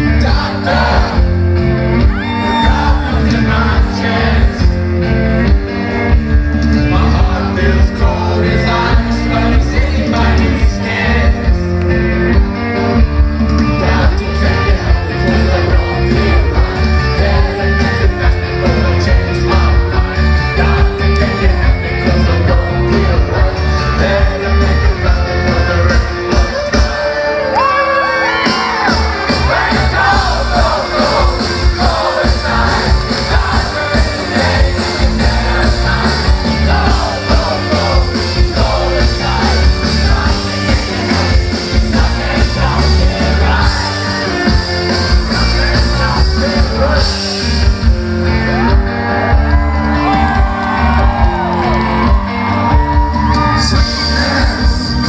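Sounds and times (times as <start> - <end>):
live rock band playing: 0.0 - 55.0
person singing: 29.5 - 47.6.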